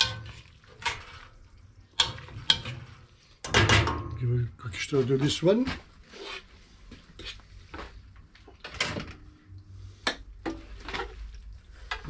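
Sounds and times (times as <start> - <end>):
utensils scraping frying pan: 0.0 - 3.6.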